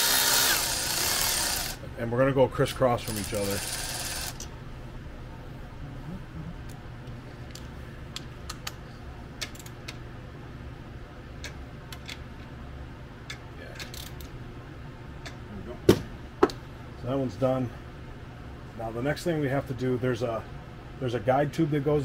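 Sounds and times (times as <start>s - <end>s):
hand ratchet clicking: 0.0s - 1.8s, 3.0s - 4.4s
low steady hum: 0.0s - 22.0s.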